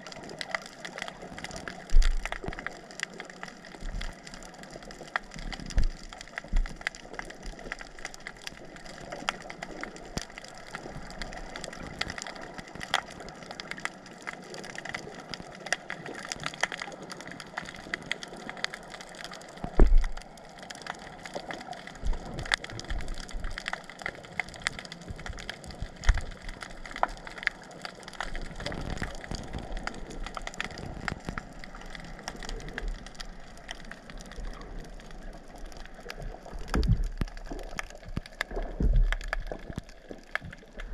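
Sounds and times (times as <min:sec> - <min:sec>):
underwater clicks crackling: 0:00.0 - 0:40.9
low underwater thumps: 0:19.7 - 0:20.2, 0:38.7 - 0:39.9.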